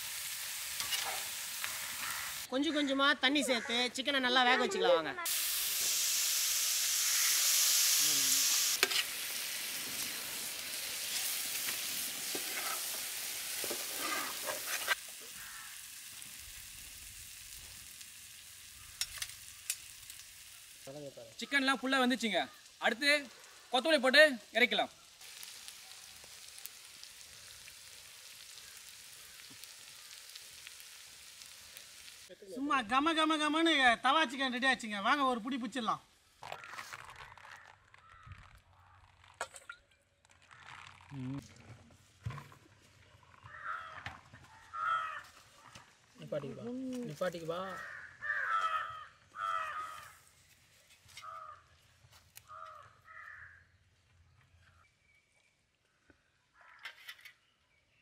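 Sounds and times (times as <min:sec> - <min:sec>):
food sizzling in a pan: 0:00.0 - 0:02.5, 0:05.2 - 0:36.7
small crackles: 0:00.5 - 0:02.5, 0:06.9 - 0:32.3, 0:36.2 - 0:48.8, 0:49.4 - 0:54.8
crow cawing: 0:01.8 - 0:04.0, 0:15.2 - 0:15.9, 0:28.4 - 0:30.2, 0:36.5 - 0:36.9, 0:37.5 - 0:39.0, 0:43.4 - 0:45.9, 0:47.6 - 0:50.3, 0:51.2 - 0:51.8, 0:52.4 - 0:53.8, 0:56.5 - 0:56.9.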